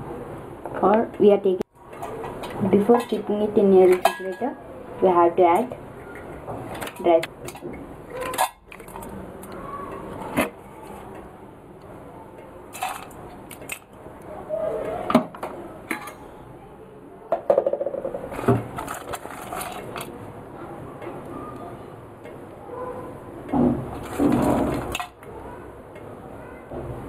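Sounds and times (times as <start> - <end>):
steel bowls and cups clinking: 3.9 - 4.6, 12.7 - 14.0, 15.9 - 16.4, 24.0 - 25.2.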